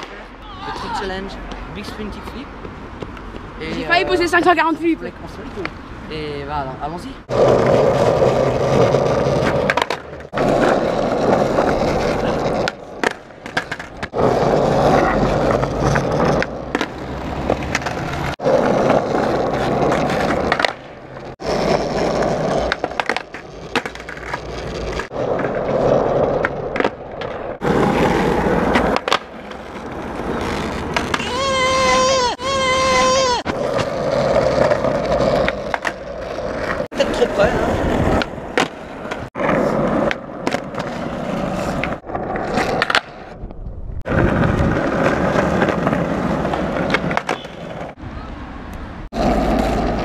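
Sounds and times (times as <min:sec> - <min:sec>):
skateboard wheels rolling on asphalt: 0:00.0 - 0:50.0
skateboard clattering on ground: 0:07.3 - 0:31.3, 0:33.5 - 0:43.3, 0:44.1 - 0:48.0.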